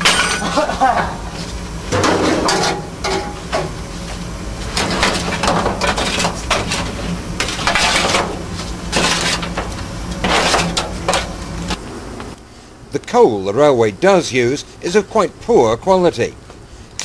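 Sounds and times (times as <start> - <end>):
steady low hum: 0.0 - 17.0
clinker scraping on steel floor: 4.7 - 11.3.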